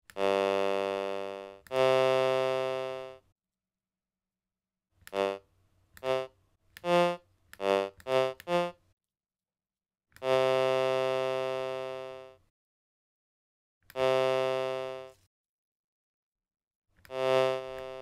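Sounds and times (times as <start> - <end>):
buzzy synthesized tones: 6.0 - 8.8.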